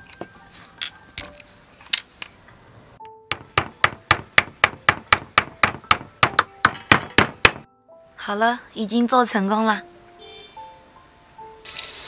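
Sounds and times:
hammer driving nails: 3.3s - 7.7s.

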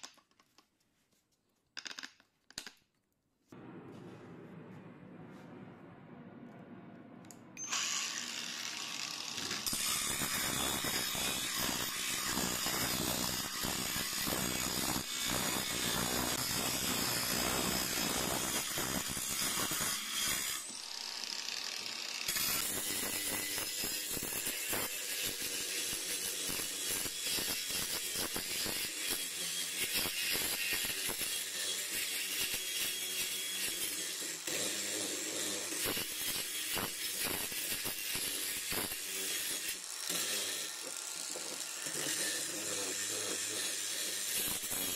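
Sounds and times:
angle grinder grinding wood: 7.6s - 44.9s.

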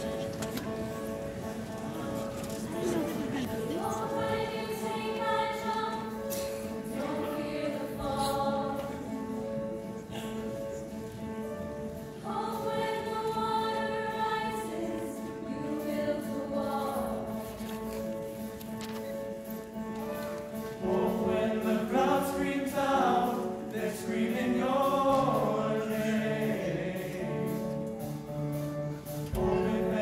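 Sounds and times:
choir singing held chords: 1.3s - 17.4s, 20.8s - 28.2s, 29.4s - 30.0s.

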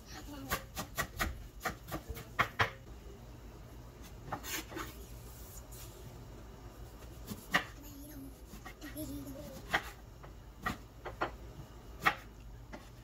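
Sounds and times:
knife scraping: 4.0s - 6.0s.

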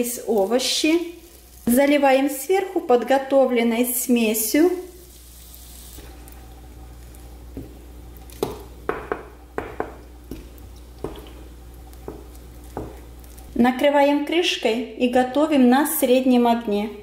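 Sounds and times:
spatula knocking on pan: 8.4s - 11.3s, 12.0s - 13.0s.

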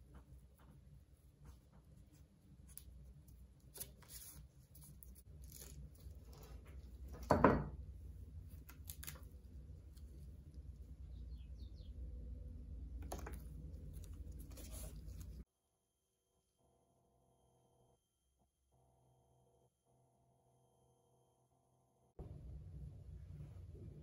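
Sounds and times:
low steady hum: 0.0s - 15.5s, 22.2s - 24.0s
glue brush scraping paper: 0.1s - 7.0s, 13.8s - 15.4s.

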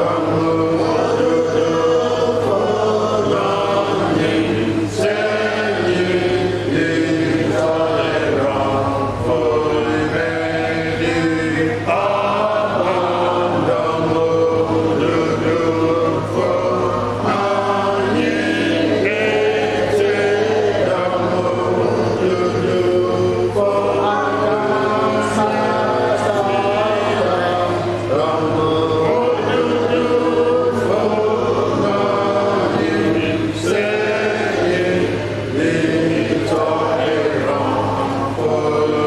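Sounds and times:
group singing a hymn: 0.0s - 39.0s
steady low hum: 0.0s - 39.0s.

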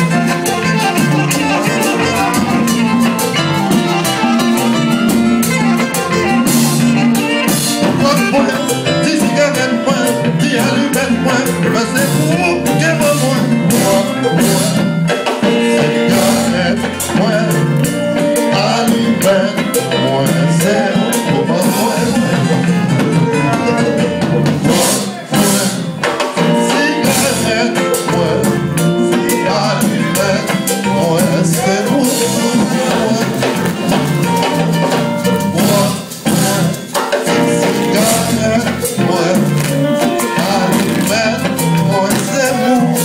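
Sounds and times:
bass: 0.0s - 43.0s
drums: 0.0s - 43.0s
guitar: 0.0s - 43.0s
live band dance music: 0.0s - 43.0s
person singing: 0.0s - 43.0s.

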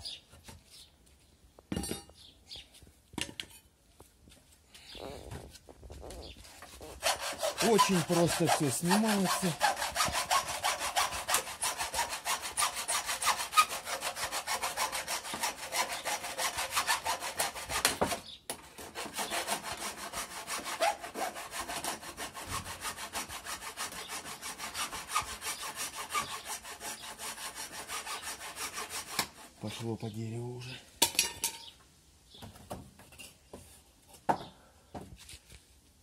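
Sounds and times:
hacksaw cutting through nails: 6.9s - 29.5s.

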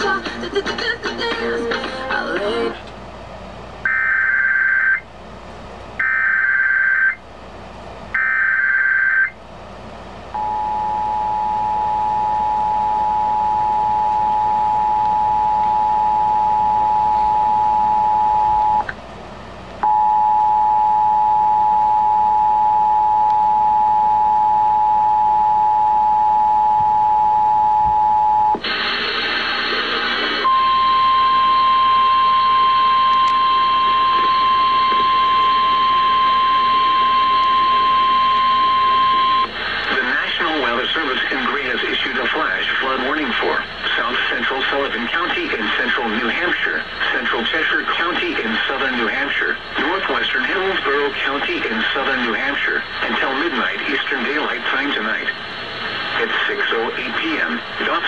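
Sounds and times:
two-tone attention signal: 10.4s - 18.8s, 30.4s - 39.5s.

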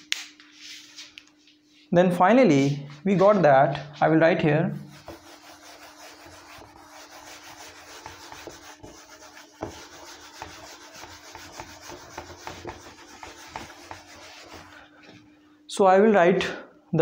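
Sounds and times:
eraser scrubbing whiteboard: 2.6s - 15.2s.

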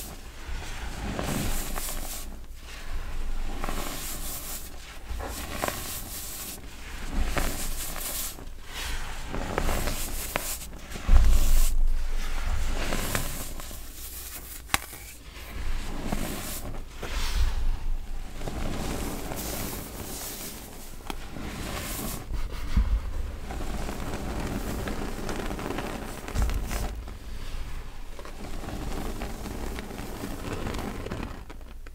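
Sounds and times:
hands crushing baking soda clumps: 0.0s - 31.9s.

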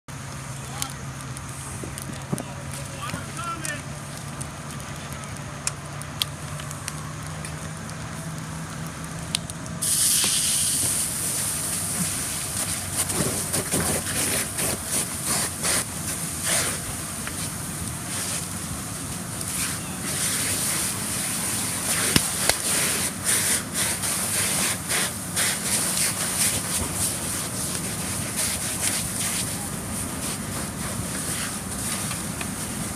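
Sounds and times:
fire crackling: 0.1s - 32.9s
sharp pops: 9.3s - 17.5s, 21.7s - 29.5s
water hose hissing: 9.8s - 32.9s.

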